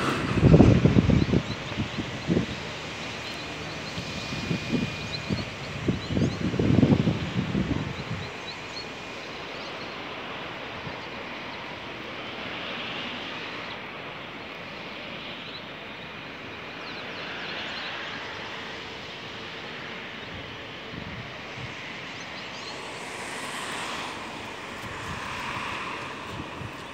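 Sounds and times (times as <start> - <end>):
distant road traffic: 0.0 - 26.9.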